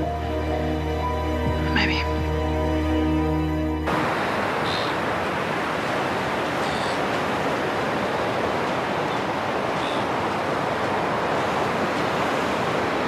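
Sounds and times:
ocean surf: 0.0s - 13.0s
wind on a beach: 3.9s - 13.0s.

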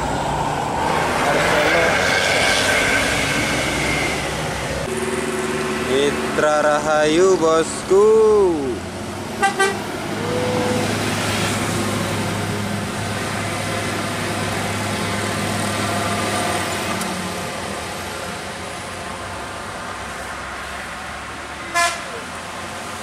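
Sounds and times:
bus diesel engine driving past: 0.0s - 23.0s
bus horn toot: 9.4s - 9.9s, 21.7s - 22.2s.

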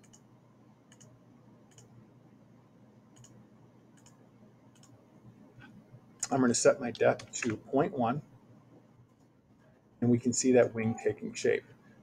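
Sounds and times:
computer mouse clicking: 0.0s - 0.3s, 0.9s - 1.9s, 3.1s - 5.0s
faint low hum: 0.0s - 12.0s.

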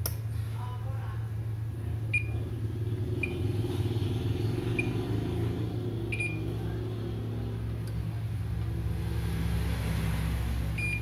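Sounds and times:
steady low hum: 0.0s - 11.0s
multimeter continuity beeps: 2.1s - 2.4s, 4.7s - 5.0s, 6.1s - 6.6s, 10.8s - 11.0s.

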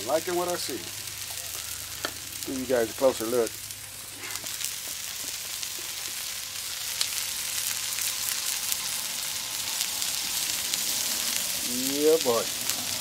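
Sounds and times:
food sizzling on a griddle: 0.0s - 13.0s.

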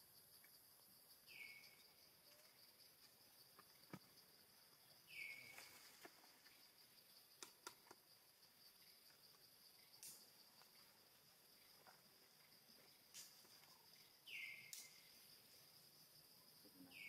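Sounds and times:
high insect drone: 0.0s - 17.0s
faint ticks: 7.2s - 8.0s, 9.0s - 10.8s, 14.6s - 15.3s.

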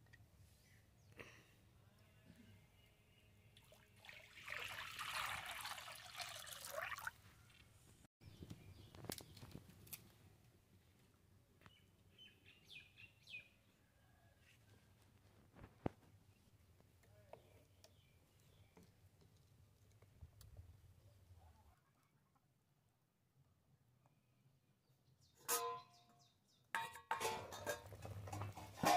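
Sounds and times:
water pouring into pot: 3.6s - 7.1s.

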